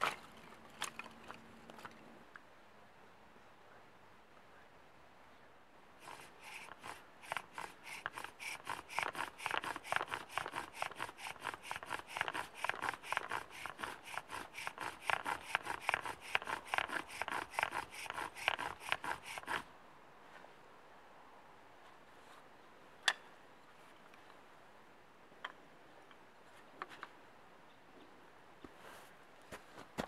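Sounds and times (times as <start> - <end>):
bow drill wood friction strokes: 6.0 - 19.7.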